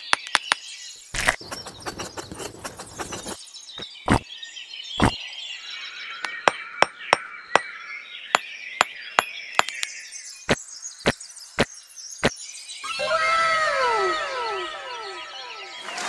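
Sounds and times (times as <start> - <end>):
birds chirping: 0.0 - 16.0
clay bricks tapping and clinking: 1.2 - 3.4
trowel working mortar: 1.2 - 3.4.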